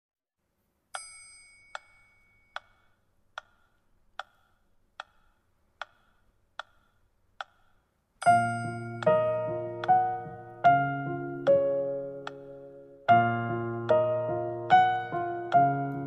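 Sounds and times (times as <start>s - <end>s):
metronome clicks: 1.0s - 10.3s, 11.4s - 12.6s
electric piano chords: 8.2s - 16.0s.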